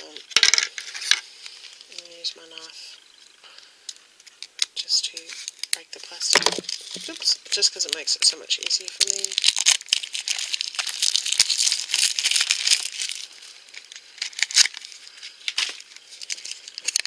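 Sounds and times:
cellophane wrap crinkling: 3.9 - 17.0.

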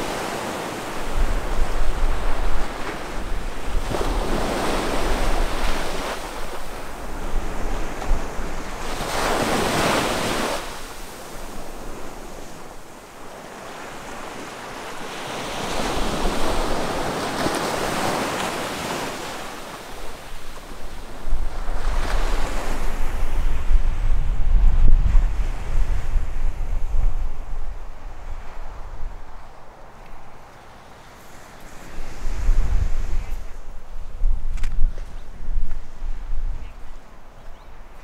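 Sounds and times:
wind buffeting microphone: 0.0 - 12.8, 19.9 - 30.4, 31.6 - 38.0
ocean surf breaking on beach: 0.0 - 34.0.

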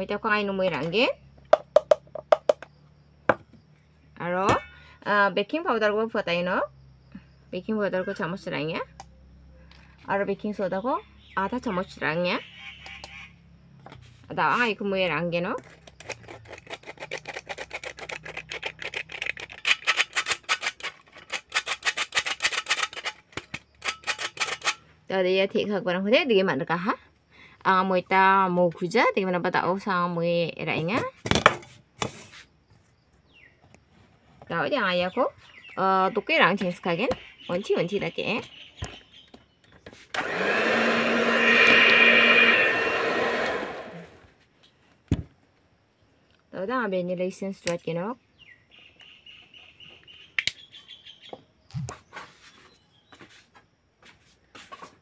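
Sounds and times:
electric hand mixer whirring: 40.2 - 44.2.

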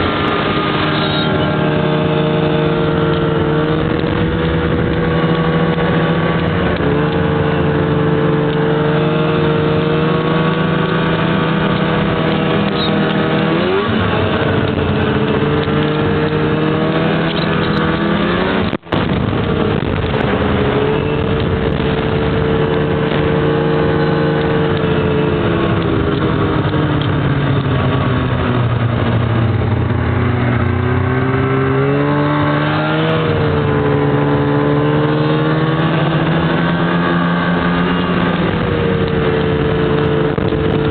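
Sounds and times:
snowmobile engine running: 0.0 - 40.9.

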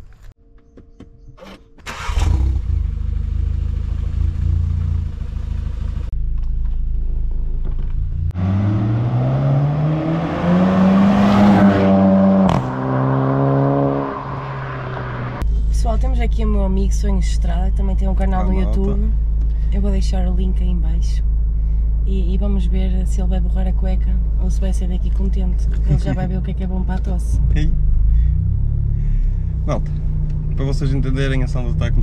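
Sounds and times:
car engine starting and idling: 1.4 - 32.0
engine revving: 1.9 - 6.1, 8.1 - 15.5, 25.7 - 32.0.

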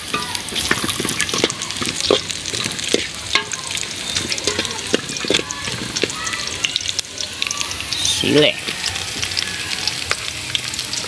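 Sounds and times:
metal ladle clinking and scraping pot: 0.1 - 6.1.

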